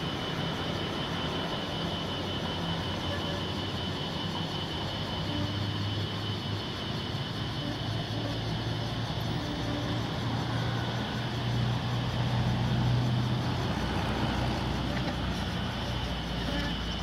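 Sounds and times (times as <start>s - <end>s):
cars driving past: 10.0s - 16.5s.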